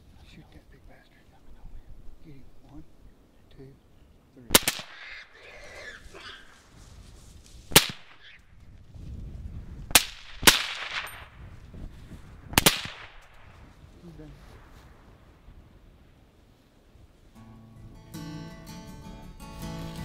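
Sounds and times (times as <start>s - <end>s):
rifle shots: 4.5s - 5.2s, 7.7s - 8.3s, 9.9s - 11.3s, 12.5s - 13.4s.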